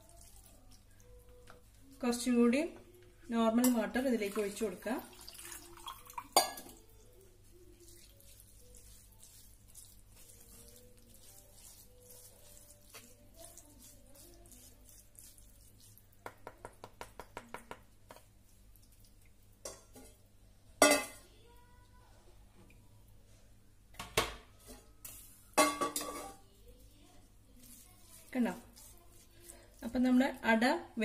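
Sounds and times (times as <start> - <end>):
faint stirring: 0.0 - 23.6, 24.5 - 31.0
water dripping: 3.6 - 6.9, 7.9 - 19.8.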